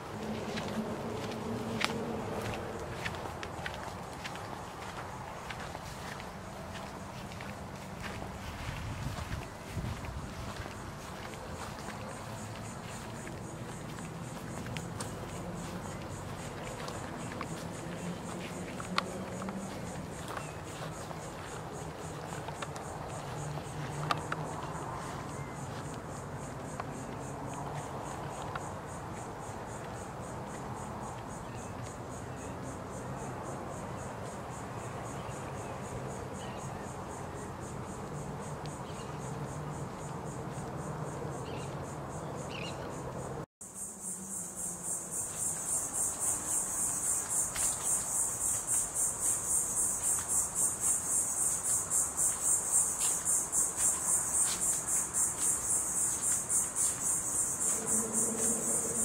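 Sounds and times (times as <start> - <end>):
insects singing shrill chorus: 43.7 - 59.0.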